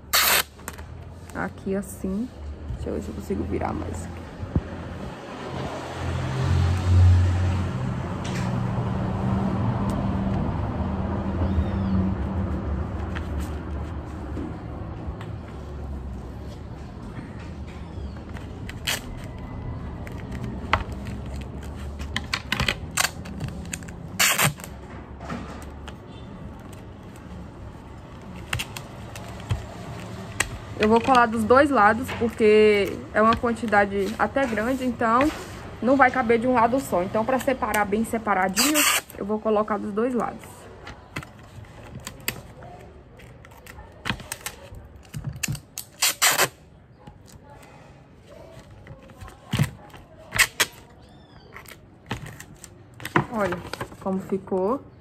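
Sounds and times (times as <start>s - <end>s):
tape ripping off roll: 0.0s - 0.9s, 22.4s - 24.8s, 38.6s - 39.2s, 45.4s - 46.6s
scissors snipping tape: 0.1s - 0.8s, 45.4s - 46.6s.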